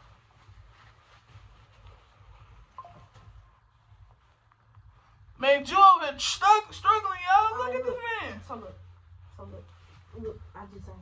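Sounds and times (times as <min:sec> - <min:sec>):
fabric rustling: 0:00.0 - 0:11.0.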